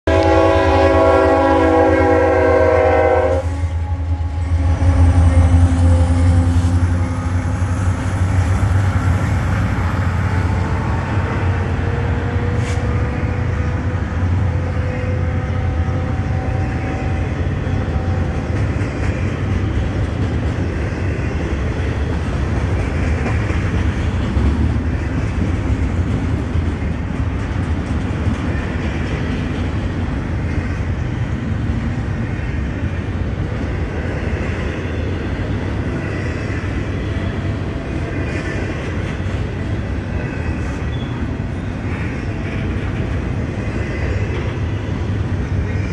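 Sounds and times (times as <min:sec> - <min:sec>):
freight train wheels rumbling on track: 0:00.1 - 0:45.9.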